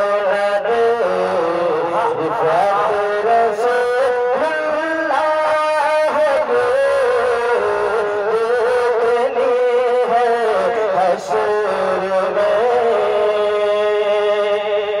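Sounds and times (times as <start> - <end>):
person singing: 0.0 - 15.0.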